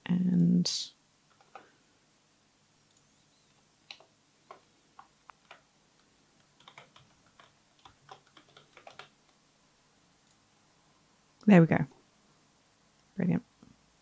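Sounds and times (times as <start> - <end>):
keyboard keys clicking: 1.3 - 1.6, 2.9 - 9.4.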